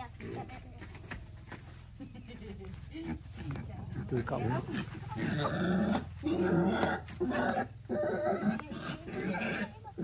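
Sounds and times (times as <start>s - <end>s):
wild boar grunting and crying: 3.0s - 10.0s.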